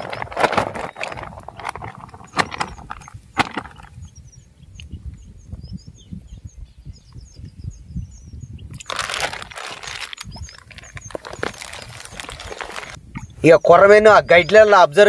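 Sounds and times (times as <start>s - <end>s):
rustling noise: 0.0s - 4.0s, 8.8s - 13.0s
small birds chirping: 0.0s - 15.0s
wind rumbling on microphone: 0.0s - 15.0s.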